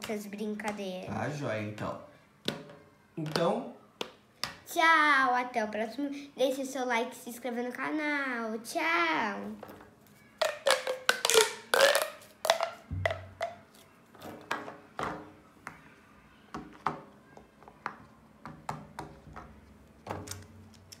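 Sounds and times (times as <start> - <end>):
plastic pop tube popping: 2.4 - 4.6, 10.4 - 15.4.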